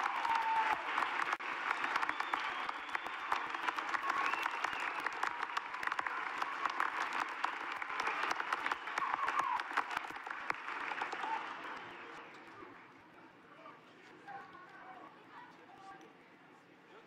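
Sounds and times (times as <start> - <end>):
crowd applauding: 0.0 - 12.3.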